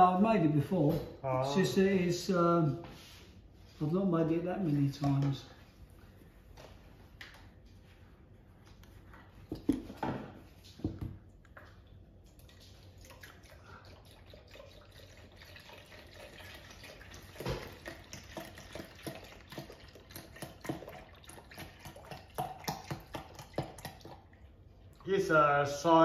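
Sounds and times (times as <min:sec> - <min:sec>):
milk pouring into jug: 0:11.0 - 0:26.0.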